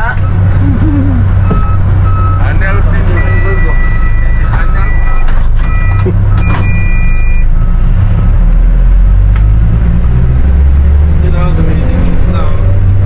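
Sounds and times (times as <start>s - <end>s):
heavy machinery engine rumble: 0.0s - 13.0s
high electronic warning beeps: 1.4s - 7.8s.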